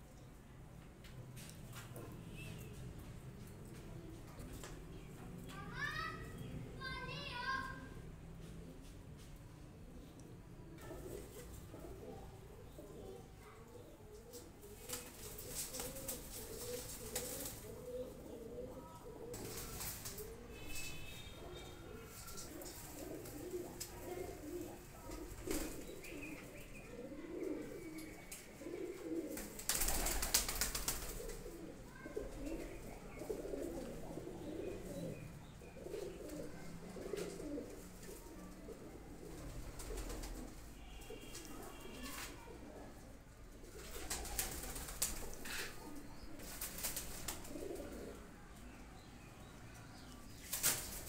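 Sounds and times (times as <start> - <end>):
pigeons cooing: 9.8 - 49.3
wings flapping: 14.3 - 17.8, 19.3 - 20.4, 22.3 - 26.2, 29.2 - 31.7, 39.2 - 42.4, 43.7 - 48.1, 50.4 - 51.0.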